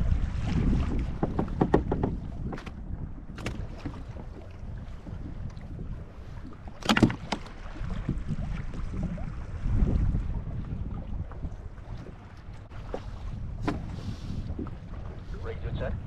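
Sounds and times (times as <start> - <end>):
wind buffeting microphone: 0.0 - 16.0
clicks and knocks of fishing gear: 1.2 - 4.0, 6.7 - 7.6.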